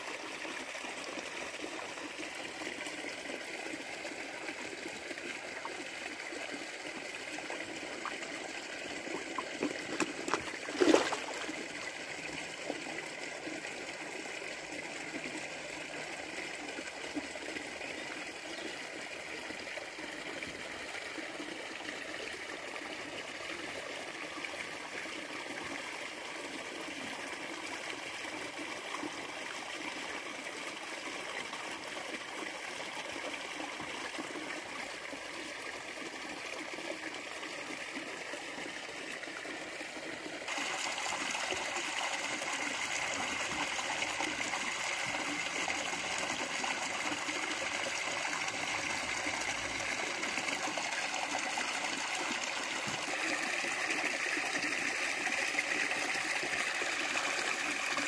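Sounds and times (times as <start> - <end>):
water rushing and splashing into pond: 0.0 - 58.0.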